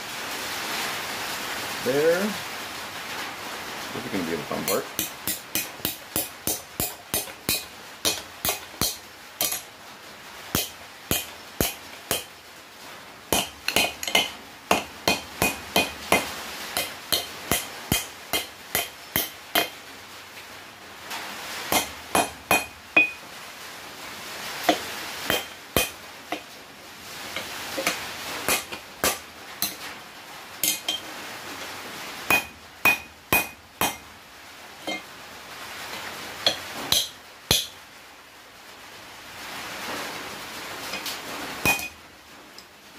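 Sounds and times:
hammer striking steel on anvil: 4.7s - 9.7s, 10.6s - 12.3s, 13.3s - 19.8s, 21.7s - 23.2s, 24.7s - 26.4s, 27.4s - 29.8s, 30.6s - 31.0s, 32.3s - 34.0s, 36.4s - 37.8s, 41.6s - 42.0s.

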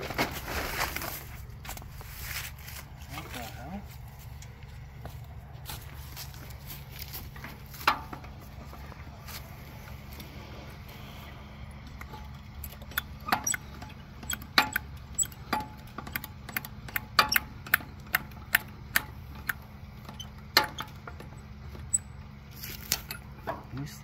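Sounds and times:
jack crank metallic clicks: 11.8s - 22.1s.

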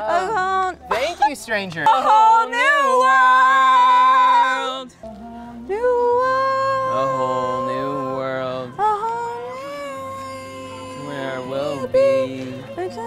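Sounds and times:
man and woman singing duet: 1.9s - 13.0s
voice singing long high note: 5.8s - 13.0s.

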